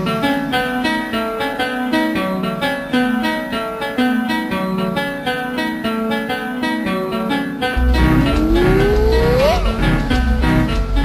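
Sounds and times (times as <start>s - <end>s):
dance music with plucked guitar: 0.0s - 11.0s.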